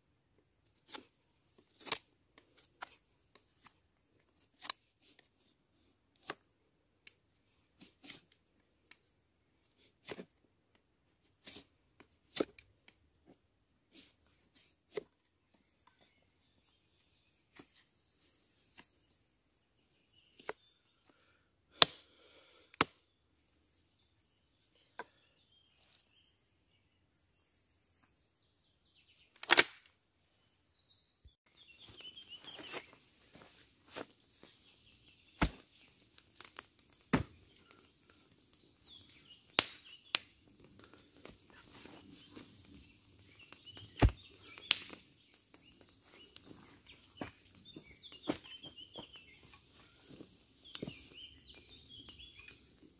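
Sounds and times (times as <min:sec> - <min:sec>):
blade chopping into wood: 0:29.4 - 0:29.9, 0:35.4 - 0:35.6, 0:44.0 - 0:45.0.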